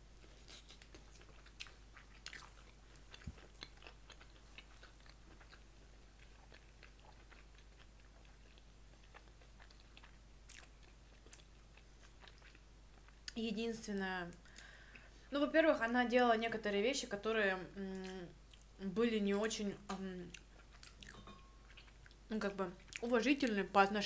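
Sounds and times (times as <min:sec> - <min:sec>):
quiet chewing: 0:00.1 - 0:13.4, 0:14.3 - 0:15.2, 0:17.9 - 0:18.7, 0:19.9 - 0:23.1.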